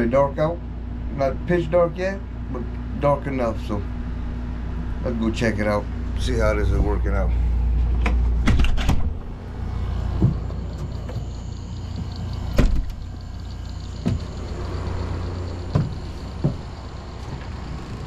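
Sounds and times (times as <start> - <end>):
footsteps: 10.0 - 12.9, 14.0 - 14.4, 15.7 - 17.6.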